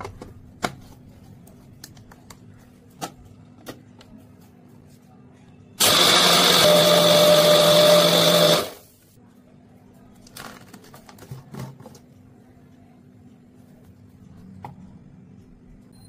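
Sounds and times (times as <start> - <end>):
blender motor running: 5.8 - 8.8.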